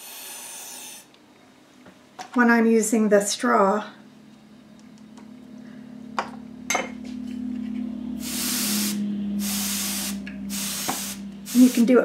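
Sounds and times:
compressed air hissing bursts: 0.0 - 1.1, 8.2 - 12.0
steady low hum: 0.0 - 12.0.

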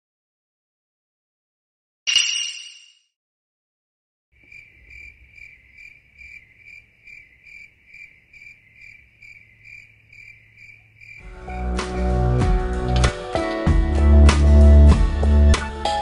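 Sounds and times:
cricket chirping: 4.4 - 11.3
music: 11.2 - 16.0.

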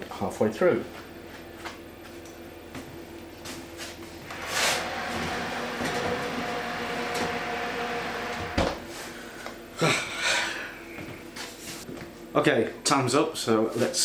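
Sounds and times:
oven fan whirring hum: 0.0 - 14.0
oven door shutting: 4.3 - 8.9.

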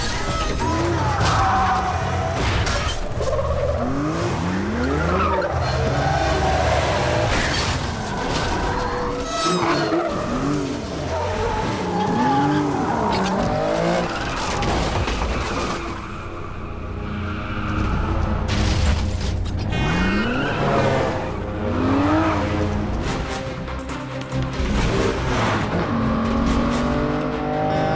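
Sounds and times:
car engines revving: 0.6 - 27.9
music: 14.3 - 27.9.

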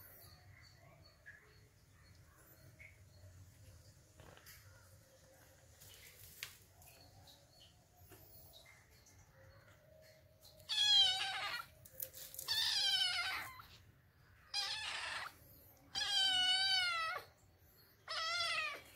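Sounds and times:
kitten meowing: 10.7 - 11.7, 12.4 - 13.8, 14.5 - 17.3, 18.1 - 18.9.

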